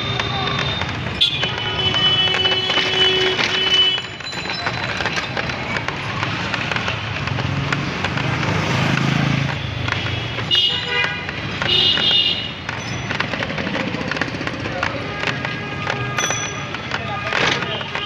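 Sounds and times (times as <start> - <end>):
vehicle engine hum: 0.0 - 18.0
vehicle horn honking: 1.2 - 4.1, 10.5 - 12.6.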